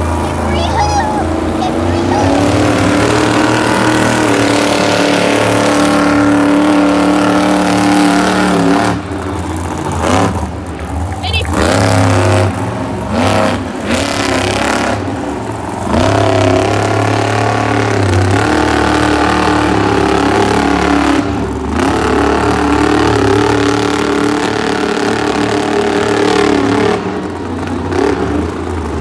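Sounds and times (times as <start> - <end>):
monster truck engine revving: 0.0 - 29.0.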